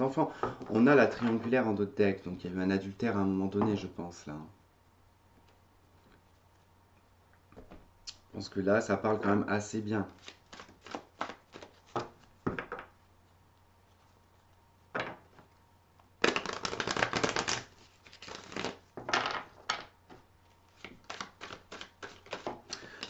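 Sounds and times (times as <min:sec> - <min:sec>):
cards being shuffled: 0:10.1 - 0:12.3, 0:16.2 - 0:19.0, 0:20.7 - 0:23.0.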